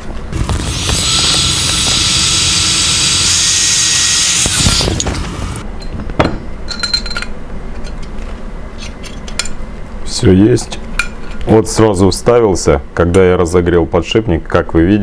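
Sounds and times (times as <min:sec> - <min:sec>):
heat gun hissing: 0:00.4 - 0:05.6.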